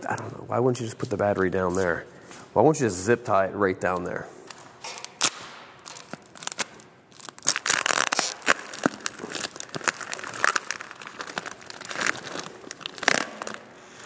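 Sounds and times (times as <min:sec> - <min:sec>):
tape crumpling rustles: 0:04.5 - 0:13.8
tape ripping and peeling: 0:04.5 - 0:13.8.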